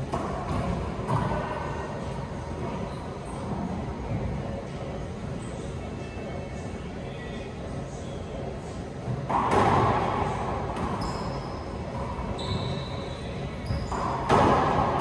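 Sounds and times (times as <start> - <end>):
racquetball hits echoing: 0.0 - 1.8, 9.0 - 15.0
shoes squeaking on hardwood: 10.9 - 14.3.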